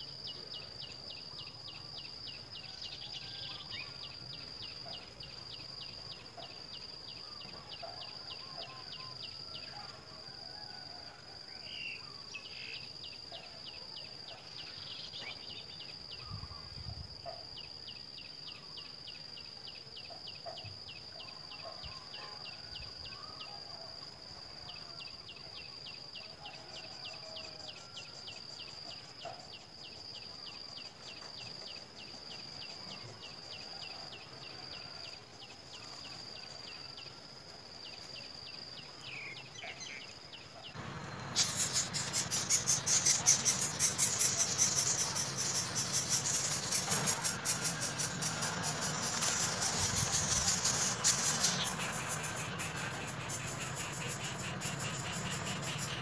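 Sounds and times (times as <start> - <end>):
insects droning and ticking: 0.0 - 56.0
faint short chirps: 41.2 - 45.2.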